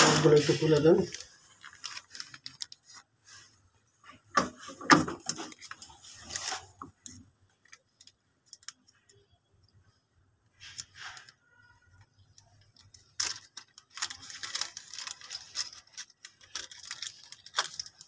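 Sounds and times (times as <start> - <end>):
plastic bag rustling: 0.0 - 8.7, 10.6 - 18.0
plastic parts clicking: 11.9 - 18.0.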